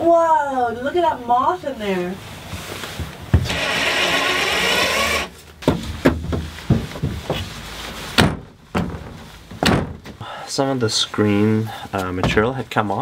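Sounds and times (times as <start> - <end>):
power driver whirring: 3.5 - 5.4
cabinet door knocks and clicks: 8.2 - 10.1.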